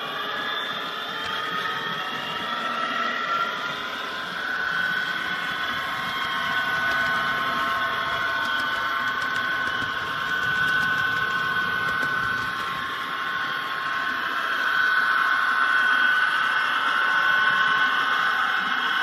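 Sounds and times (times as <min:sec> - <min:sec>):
wheels rumbling on rails: 0:00.0 - 0:15.1
model locomotive motor whine: 0:00.0 - 0:19.0.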